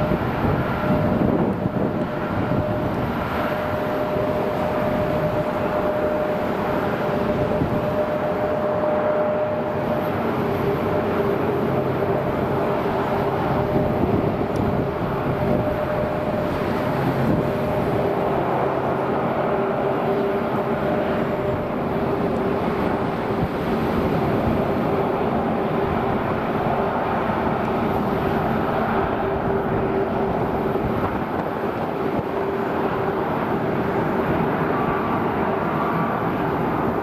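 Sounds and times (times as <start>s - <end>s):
jet engines at high power: 0.0s - 37.0s.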